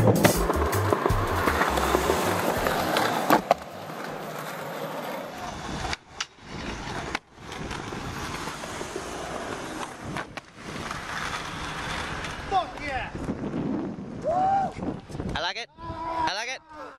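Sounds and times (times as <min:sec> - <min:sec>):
passing road traffic: 0:00.0 - 0:12.5
skateboard clacks: 0:00.0 - 0:13.4
skateboard wheels rolling: 0:00.0 - 0:15.4.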